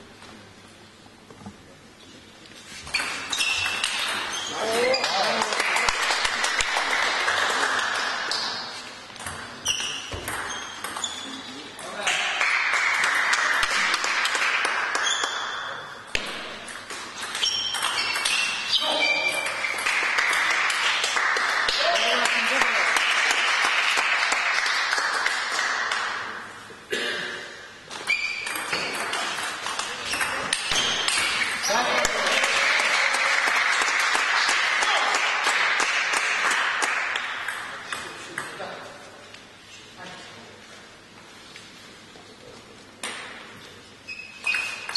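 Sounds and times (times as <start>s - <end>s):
spectators clapping: 5.0s - 8.3s, 12.0s - 15.4s, 19.7s - 26.4s, 31.8s - 37.4s.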